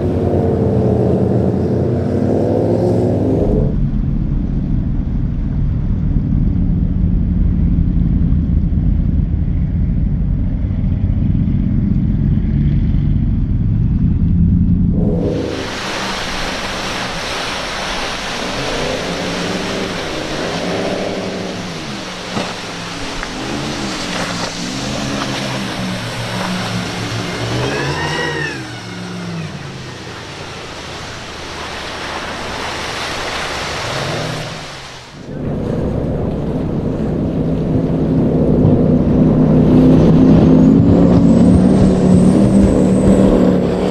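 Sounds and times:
speedboat engines running: 0:00.0 - 0:43.9
rushing water and spray: 0:15.0 - 0:43.9.

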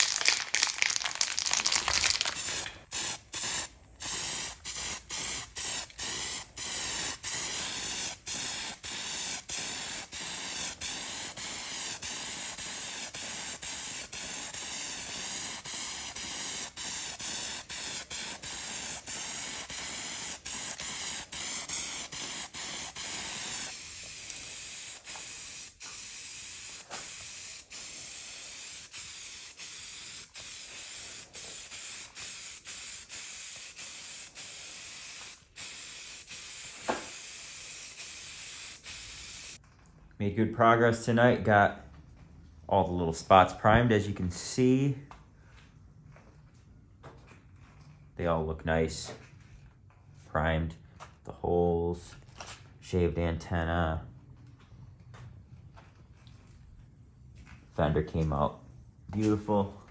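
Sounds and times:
aerosol can spraying hiss: 0:02.1 - 0:39.6.

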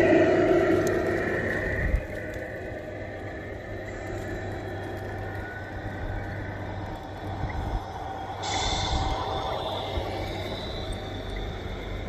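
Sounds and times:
wheels rolling on asphalt: 0:00.0 - 0:12.0.

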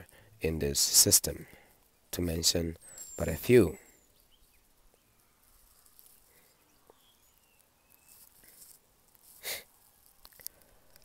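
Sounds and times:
breathy sniff: 0:09.3 - 0:09.7
faint clicks: 0:10.0 - 0:11.0.

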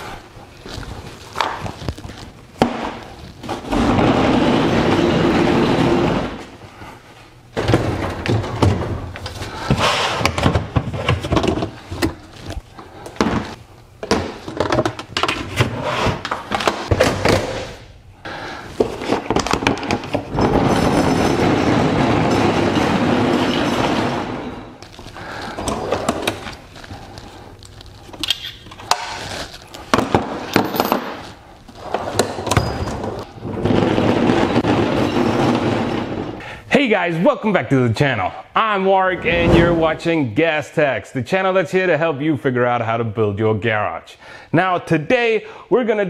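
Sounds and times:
tool cart wheels rolling: 0:03.5 - 0:06.5
tools and plastic bin clattering: 0:07.6 - 0:12.2, 0:29.9 - 0:36.2.

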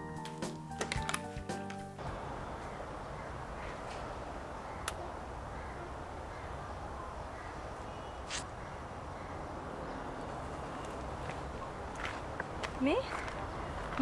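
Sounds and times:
outdoor background noise: 0:00.0 - 0:14.0
crows cawing: 0:02.6 - 0:07.7, 0:13.1 - 0:13.9
short hiss: 0:08.3 - 0:08.5.

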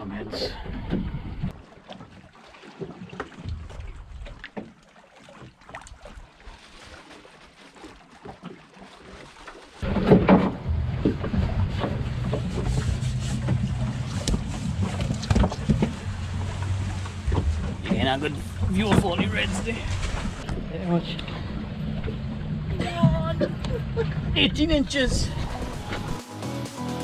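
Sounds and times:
water lapping against boat hull: 0:00.0 - 0:26.2
small knocks on hull: 0:09.8 - 0:19.4
outboard motors droning: 0:09.8 - 0:26.7.

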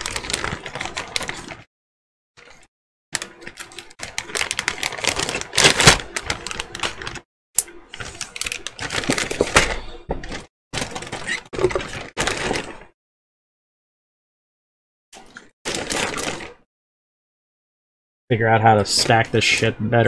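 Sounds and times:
plastic bags crinkling: 0:00.0 - 0:01.7, 0:03.2 - 0:07.2, 0:08.0 - 0:12.9, 0:15.7 - 0:16.6
plastic pieces clattering: 0:03.2 - 0:07.2, 0:08.0 - 0:12.8.

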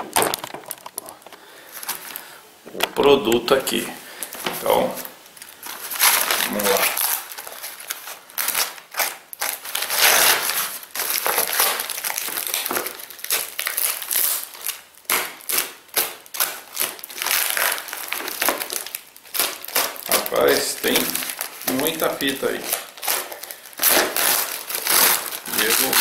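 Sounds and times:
packing tape tearing and crumpling: 0:00.0 - 0:02.9, 0:04.2 - 0:26.0.

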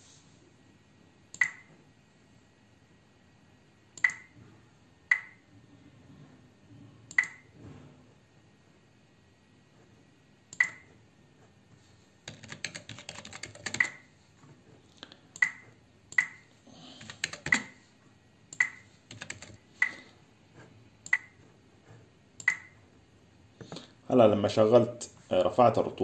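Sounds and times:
mouse clicks: 0:01.4 - 0:01.7, 0:04.0 - 0:04.3, 0:18.5 - 0:18.8, 0:21.0 - 0:21.4
keyboard typing: 0:12.2 - 0:14.1, 0:15.3 - 0:17.9, 0:18.5 - 0:20.1, 0:21.0 - 0:22.8.

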